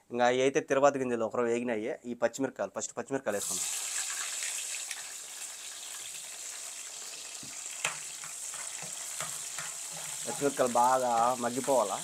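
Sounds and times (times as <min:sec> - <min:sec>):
chillies sizzling in oil: 0:03.3 - 0:12.0
spoon stirring in pan: 0:06.0 - 0:12.0.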